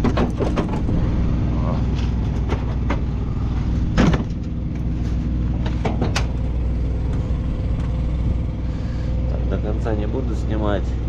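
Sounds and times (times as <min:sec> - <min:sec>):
metal knocks and clanks: 0:00.0 - 0:01.2, 0:02.0 - 0:03.2, 0:03.8 - 0:04.9, 0:05.5 - 0:06.4
truck engine idling: 0:00.0 - 0:11.0.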